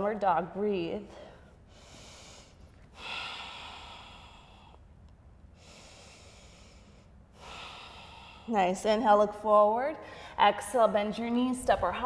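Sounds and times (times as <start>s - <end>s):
woman breathing slowly: 1.1s - 8.7s, 10.0s - 10.4s.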